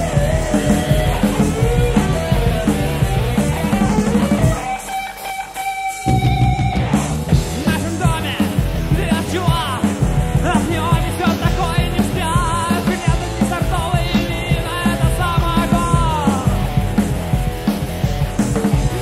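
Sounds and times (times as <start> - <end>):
rock band music: 0.0 - 19.0.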